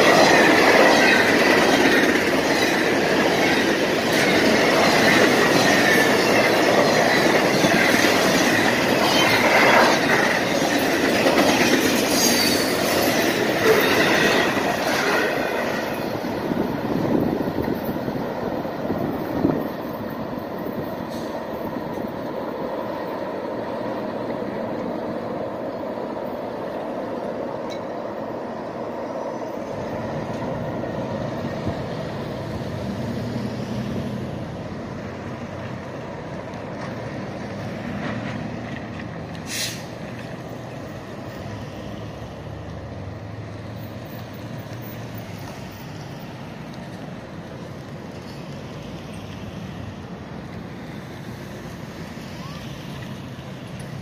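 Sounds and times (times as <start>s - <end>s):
air brakes hiss: 21.0s - 21.5s, 39.4s - 40.0s.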